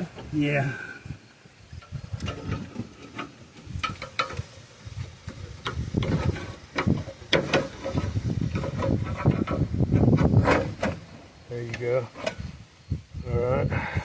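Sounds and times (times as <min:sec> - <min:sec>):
metal knocking and clanking: 0:01.8 - 0:04.5, 0:05.2 - 0:12.4.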